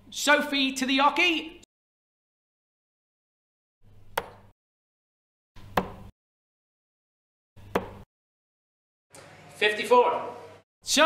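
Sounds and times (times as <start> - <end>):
darts hitting dartboard: 4.2 - 4.5, 5.6 - 6.1, 7.6 - 8.0.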